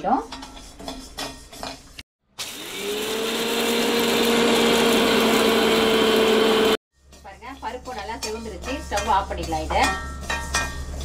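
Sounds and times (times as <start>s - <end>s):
mixer grinder whining: 2.4s - 6.8s.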